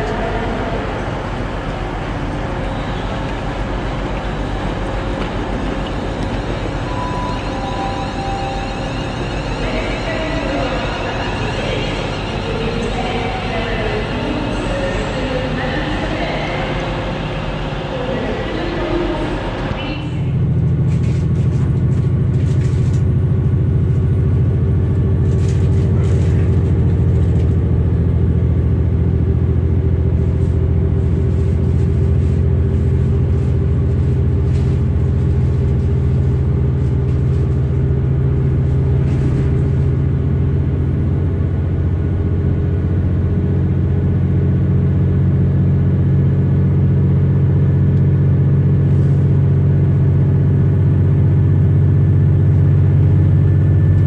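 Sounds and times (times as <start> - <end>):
steady hum tones: 0.0 - 21.2
train interior rumble: 0.0 - 54.0.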